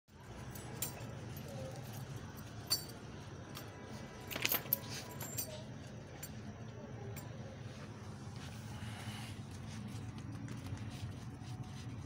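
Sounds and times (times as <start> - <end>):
low steady hum: 0.1 - 12.0
chain leash jingling: 0.4 - 6.3.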